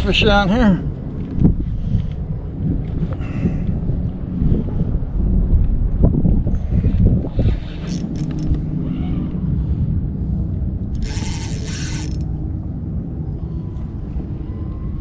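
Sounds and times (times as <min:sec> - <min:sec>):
wind rumble on microphone: 0:00.0 - 0:15.0
fishing reel buzzing: 0:07.6 - 0:08.6, 0:10.9 - 0:12.3.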